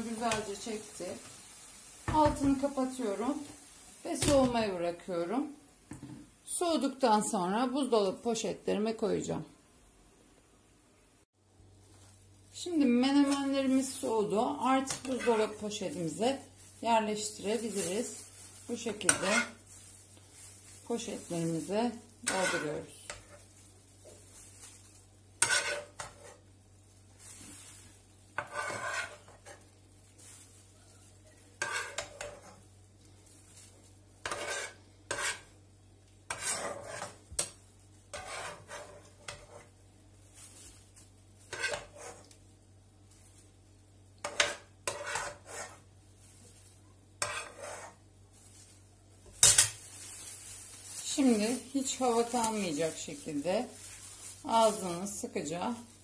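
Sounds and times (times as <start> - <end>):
metal spoon scraping a pot: 18.8 - 19.6, 22.3 - 23.4, 25.4 - 26.4, 28.4 - 29.6, 31.6 - 32.6, 34.2 - 35.5, 36.3 - 37.2, 38.1 - 39.7, 41.5 - 42.3, 44.2 - 45.8, 47.2 - 48.0.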